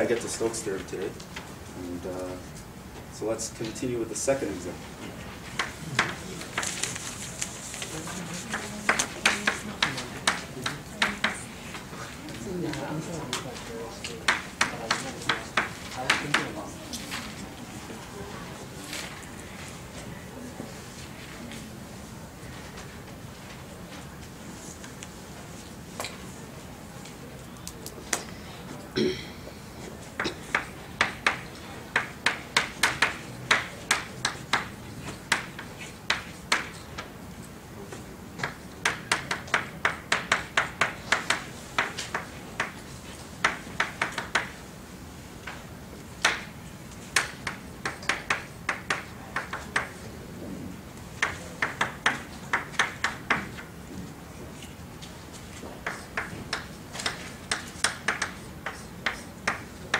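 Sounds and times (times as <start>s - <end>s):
chalk tapping on blackboard: 5.5s - 7.0s, 8.3s - 11.4s, 14.2s - 16.6s, 30.4s - 37.1s, 38.4s - 44.6s, 46.2s - 50.0s, 51.2s - 53.7s, 55.6s - 59.8s.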